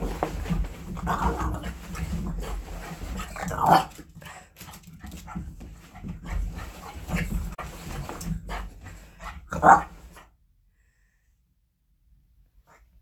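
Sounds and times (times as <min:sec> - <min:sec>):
dog paws scrabbling on floor: 0:00.0 - 0:10.3.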